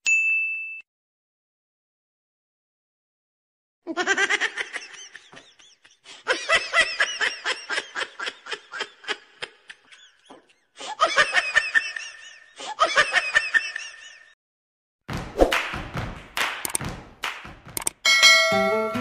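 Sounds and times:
high-pitched laughter: 0:03.9 - 0:14.4.

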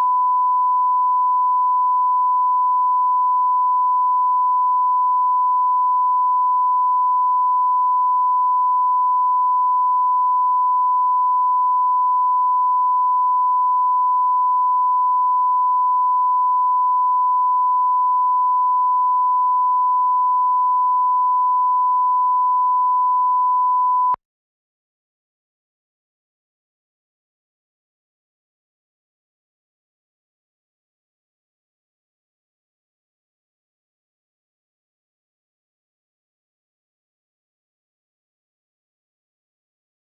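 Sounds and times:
steady sine test tone: 0:00.0 - 0:24.2.

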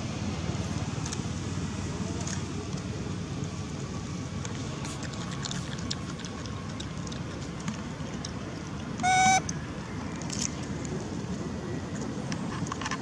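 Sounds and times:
low outdoor rumble: 0:00.0 - 0:13.0
short loud tone: 0:09.0 - 0:09.4.

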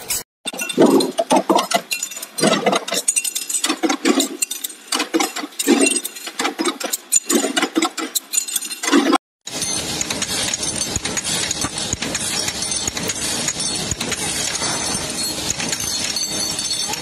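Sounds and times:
metal press clanking: 0:00.0 - 0:17.0.

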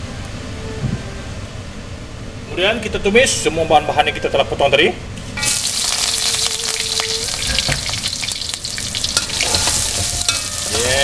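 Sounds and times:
metal spatula scraping wok: 0:05.4 - 0:11.0
onions sizzling in hot oil: 0:05.4 - 0:11.0.

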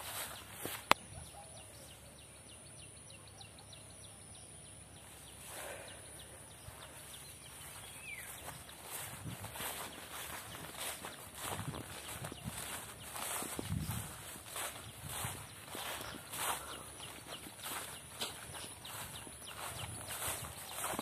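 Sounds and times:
footsteps through vegetation: 0:00.0 - 0:01.1, 0:06.5 - 0:21.0.

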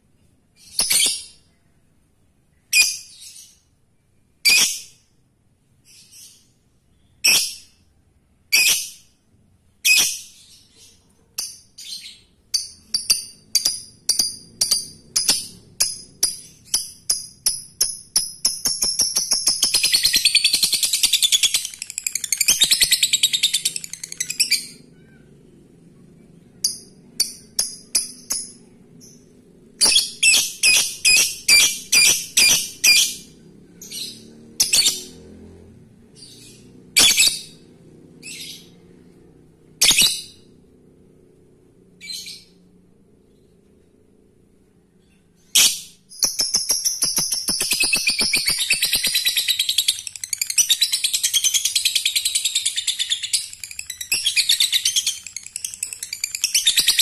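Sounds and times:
lovebird chirping: 0:00.6 - 0:01.8, 0:02.5 - 0:05.0, 0:05.8 - 0:07.9, 0:08.5 - 0:09.1, 0:09.8 - 0:25.6, 0:26.3 - 0:35.2, 0:36.1 - 0:38.8, 0:39.8 - 0:40.6, 0:45.0 - 0:57.0.

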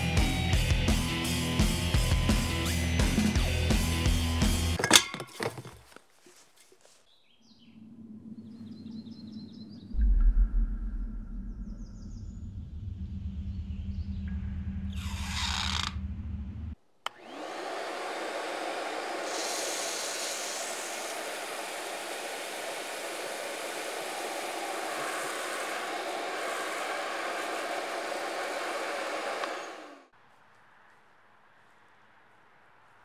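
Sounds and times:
low hum: 0:07.7 - 0:15.0
blower blasting air: 0:15.0 - 0:15.9, 0:17.1 - 0:30.1.

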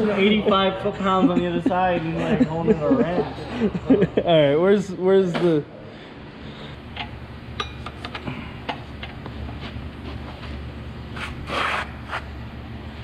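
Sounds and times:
low steady hum: 0:00.0 - 0:13.0
short scraping rub: 0:11.1 - 0:12.3.

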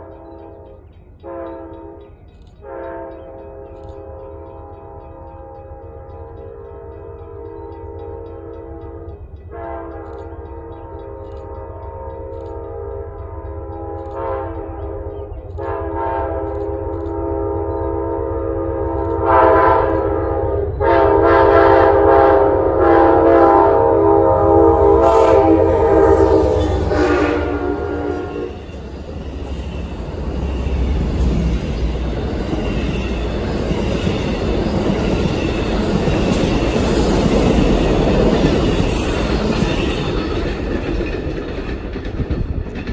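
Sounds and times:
locomotive air horn: 0:00.0 - 0:02.0, 0:02.6 - 0:05.0, 0:07.3 - 0:28.7
train wheels clattering over rails: 0:25.0 - 0:42.9.

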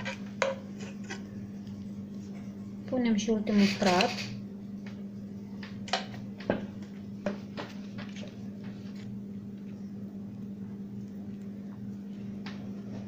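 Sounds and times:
spatula scraping chocolate glaze: 0:00.0 - 0:02.5
low hum: 0:04.4 - 0:13.0.

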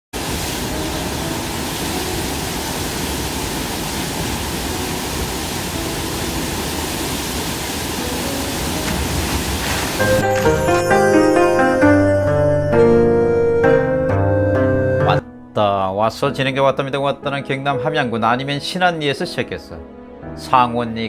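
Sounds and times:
waterfall rushing: 0:00.2 - 0:12.1.

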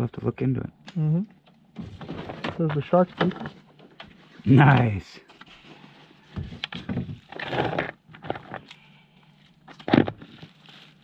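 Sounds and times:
plastic bag rustling: 0:10.1 - 0:11.0.

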